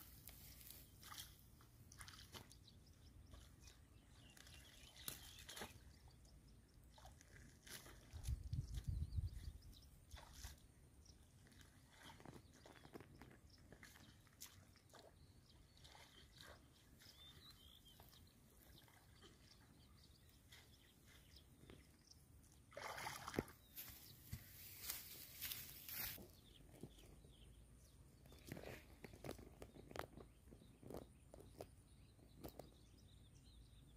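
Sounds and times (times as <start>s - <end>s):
steps in dry grass: 0.0s - 2.2s, 23.4s - 27.0s
hands splashing in muddy water: 22.7s - 24.1s.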